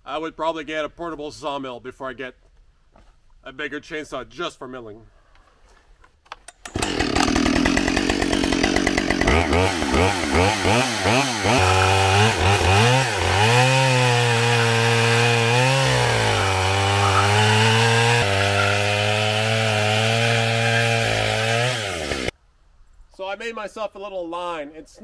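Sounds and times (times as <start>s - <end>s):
chainsaw revving and cutting log: 6.7s - 22.3s.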